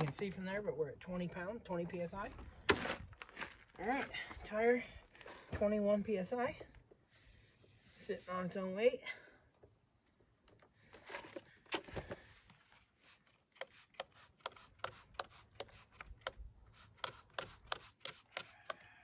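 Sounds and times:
spray bottle squirting: 0:13.0 - 0:18.8.

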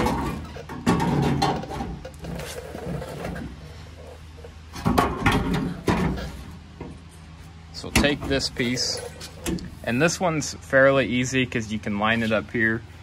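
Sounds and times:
sheet metal clunks and scrapes: 0:00.0 - 0:07.0.

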